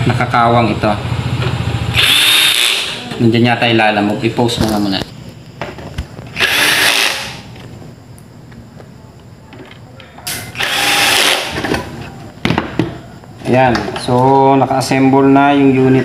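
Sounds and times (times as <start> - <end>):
cordless drill driving screws: 2.0 - 3.0, 6.4 - 7.4, 10.6 - 11.6.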